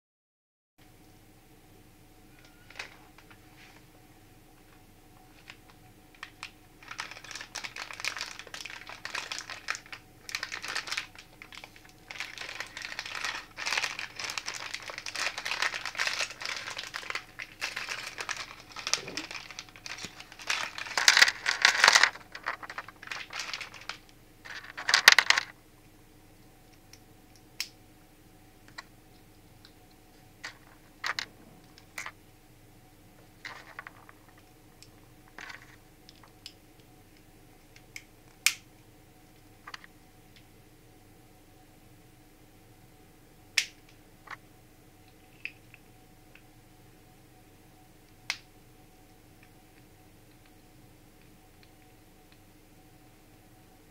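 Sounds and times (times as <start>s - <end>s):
plastic wrapper crinkling: 5.4s - 25.6s, 30.4s - 32.2s, 33.4s - 34.6s, 35.3s - 36.6s.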